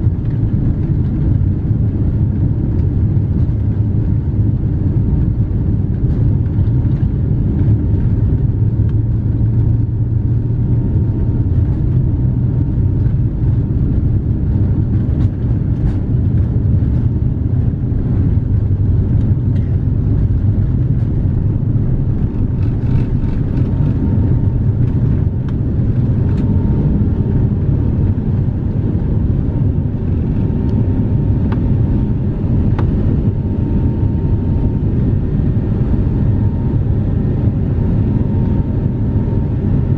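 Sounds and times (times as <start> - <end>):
airplane cabin engine rumble: 0.0 - 39.9.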